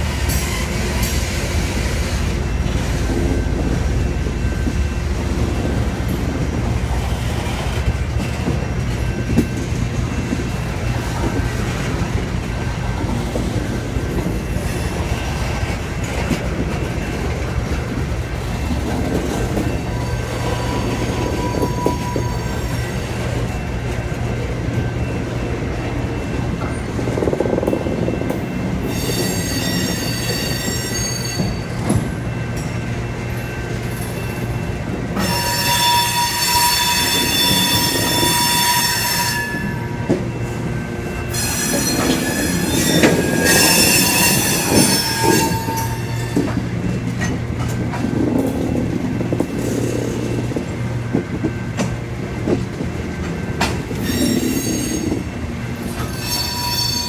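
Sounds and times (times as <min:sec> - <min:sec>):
freight train rolling past: 0:00.0 - 0:57.0
high-pitched wheel squeal: 0:28.8 - 0:31.6, 0:35.2 - 0:40.0, 0:41.3 - 0:46.4, 0:56.0 - 0:57.0.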